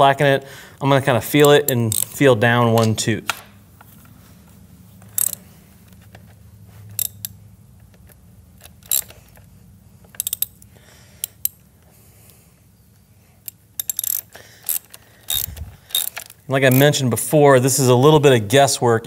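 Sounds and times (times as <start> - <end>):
low steady hum: 0.0 - 19.0
socket wrench metallic clicks: 1.4 - 3.5, 5.0 - 5.4, 6.9 - 9.5, 10.1 - 11.7, 13.4 - 16.9.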